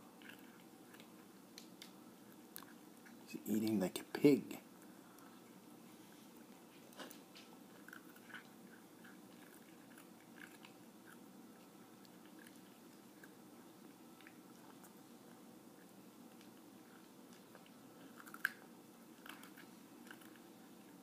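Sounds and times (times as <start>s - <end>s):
cat crunching dry kibble: 6.9s - 21.0s.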